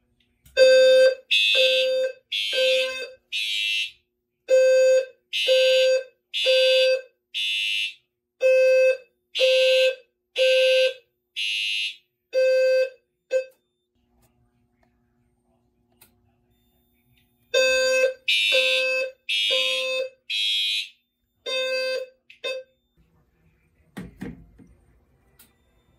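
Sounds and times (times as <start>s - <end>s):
high harsh fire alarm horn: 0.6s - 13.6s, 17.5s - 22.9s
low buzzy fire alarm horn: 0.6s - 13.6s, 17.5s - 23.0s.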